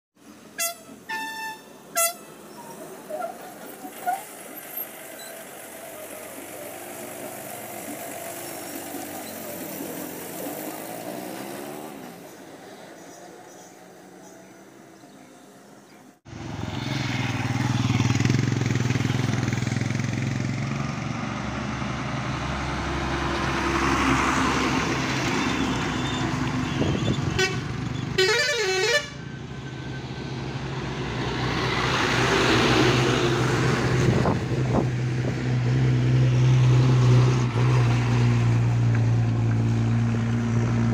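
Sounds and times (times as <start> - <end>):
heavy vehicle engines: 0.2 - 40.9
vehicle horn toot: 0.6 - 2.8, 25.6 - 29.4.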